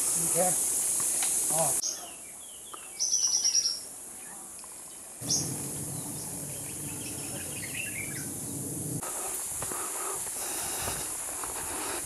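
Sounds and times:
insects hissing: 0.0 - 1.9, 5.2 - 12.0
faint bird chirps: 1.8 - 8.7.

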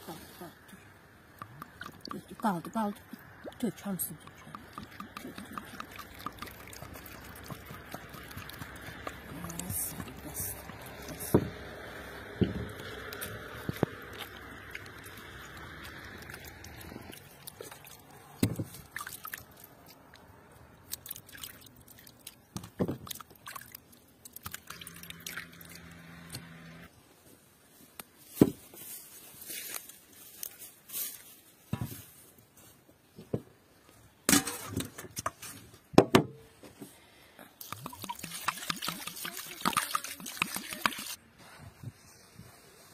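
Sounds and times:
wet squelching and splashing: 1.5 - 25.9, 37.6 - 41.2.

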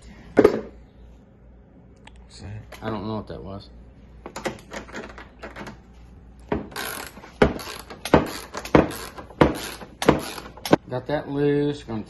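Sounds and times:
socket ratchet clicking: 6.8 - 10.8.

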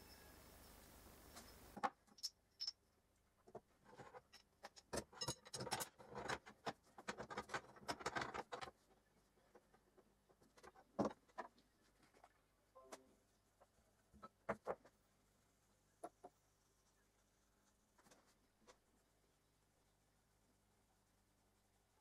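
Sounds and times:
metal parts clinking and scraping: 1.4 - 2.8.

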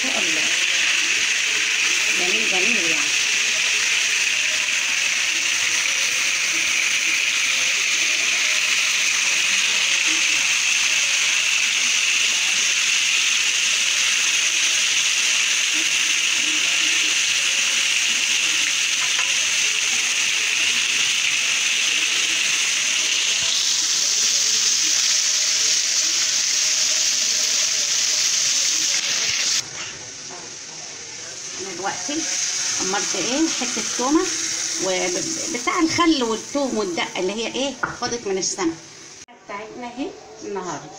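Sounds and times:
fish sizzling in hot oil: 0.0 - 39.3.

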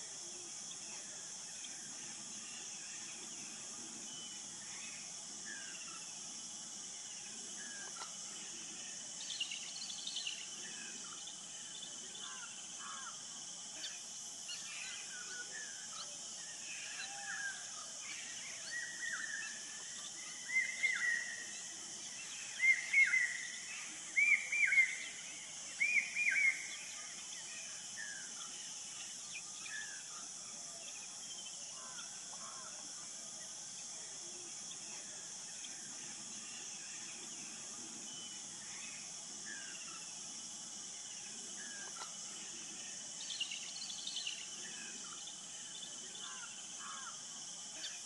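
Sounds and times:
high-pitched insect drone: 0.0 - 48.0
bird calls: 22.3 - 26.8.

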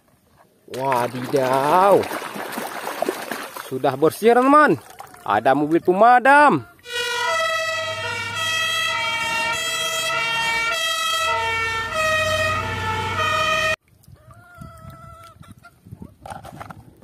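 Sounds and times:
two-tone fire engine siren: 6.8 - 13.8.

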